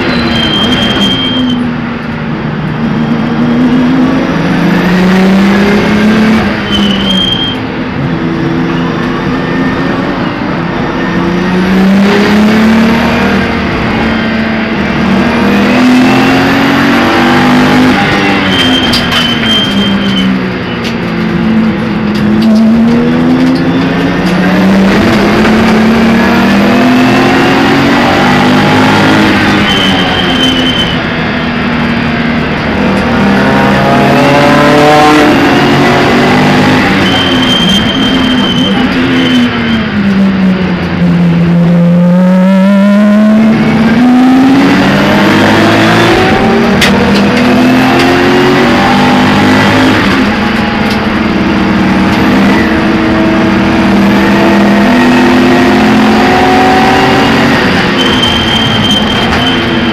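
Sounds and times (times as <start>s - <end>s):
race car engine revving: 0.0s - 59.9s.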